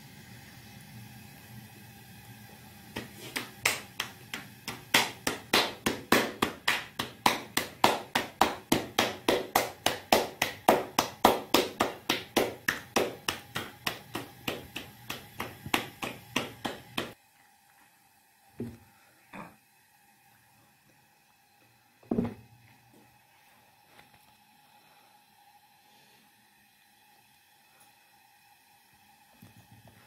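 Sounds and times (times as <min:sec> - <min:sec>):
rapid sharp taps: 0:03.0 - 0:17.2.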